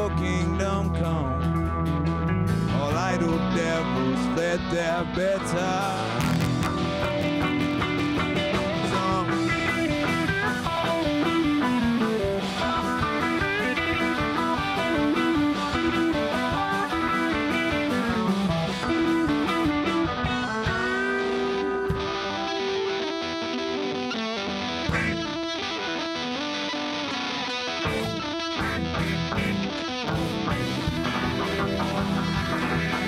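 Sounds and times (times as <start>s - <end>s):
bass: 0.0s - 26.5s, 27.5s - 33.0s
electric guitars playing: 0.0s - 33.0s
drums and cymbals: 2.2s - 22.6s, 24.9s - 25.3s, 27.9s - 33.0s.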